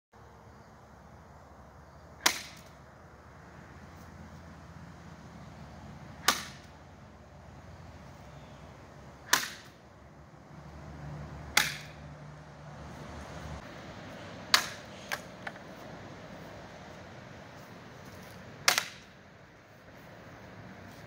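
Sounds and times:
sword slicing bamboo: 0:02.2 - 0:02.7, 0:06.2 - 0:06.7, 0:09.2 - 0:09.8, 0:11.5 - 0:12.0, 0:18.6 - 0:19.1.

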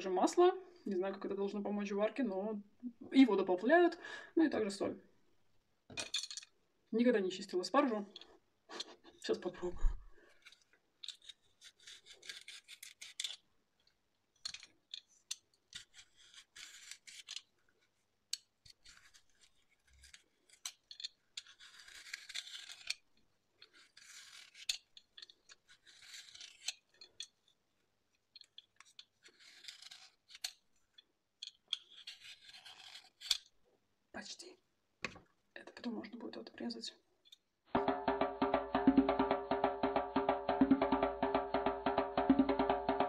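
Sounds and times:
vegetable peeler scraping: 0:10.4 - 0:13.4, 0:15.7 - 0:17.4, 0:18.7 - 0:23.0, 0:23.6 - 0:27.0, 0:28.8 - 0:30.6, 0:31.7 - 0:33.5.

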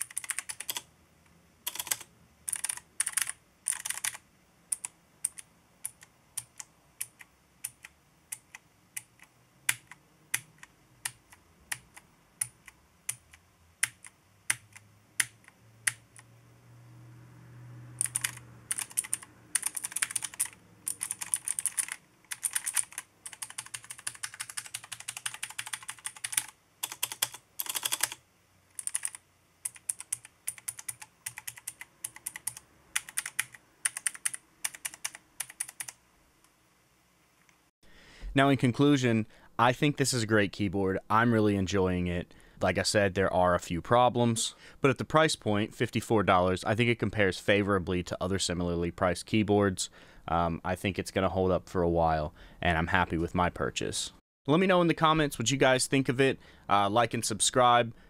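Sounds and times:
mechanical keyboard typing: 0:00.0 - 0:00.9, 0:01.7 - 0:16.3, 0:18.0 - 0:36.0.

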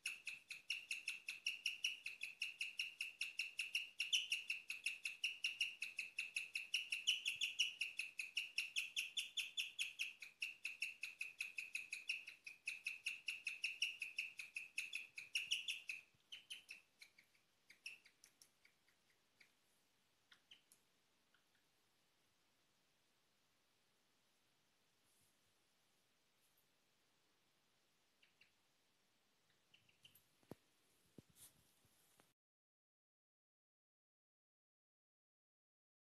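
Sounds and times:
guinea pig chirping: 0:00.0 - 0:19.6, 0:20.3 - 0:21.7, 0:28.1 - 0:28.6, 0:29.4 - 0:30.2.

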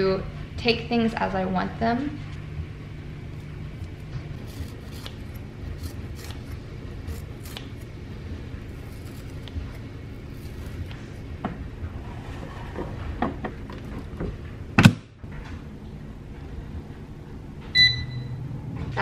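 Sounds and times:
steady low hum: 0:00.0 - 0:19.0
food preparation clicks and snips: 0:03.8 - 0:07.9.

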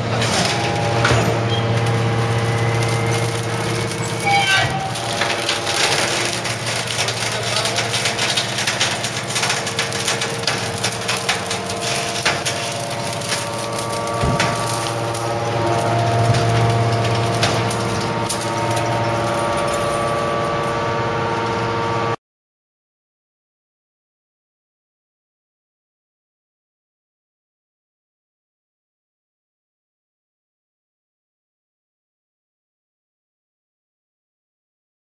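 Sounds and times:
metal springs cracking and rattling: 0:00.0 - 0:21.9
hydraulic baler humming: 0:00.0 - 0:22.2.

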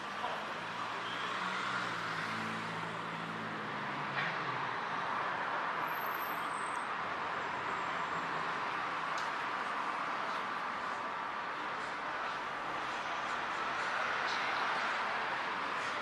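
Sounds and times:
road noise hiss: 0:05.1 - 0:16.0.

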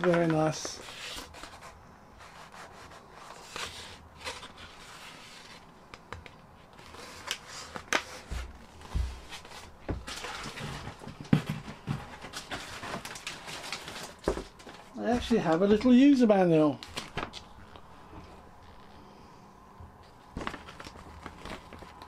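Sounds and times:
handling noise of foam model: 0:00.0 - 0:19.1
rustling: 0:00.0 - 0:22.0.

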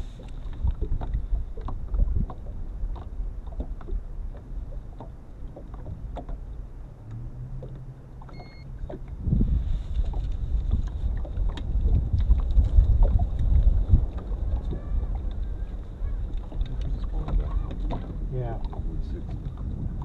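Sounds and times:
low steady hum: 0:00.0 - 0:20.0
water against hull: 0:00.0 - 0:20.0
wind buffeting microphone: 0:00.0 - 0:20.0
light knocks and clicks: 0:00.2 - 0:09.1
short electronic beep: 0:08.3 - 0:08.7.

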